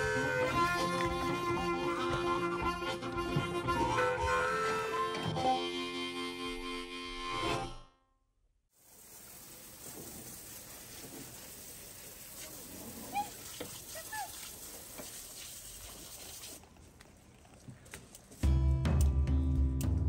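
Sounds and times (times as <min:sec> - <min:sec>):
garden hose spraying water: 0:08.8 - 0:17.3.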